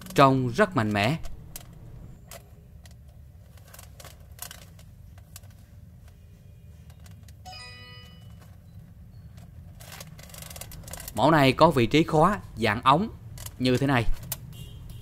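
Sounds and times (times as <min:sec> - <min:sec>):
short bell-like chime: 0:07.5 - 0:08.4
metal chain clicking and clinking: 0:09.3 - 0:11.3.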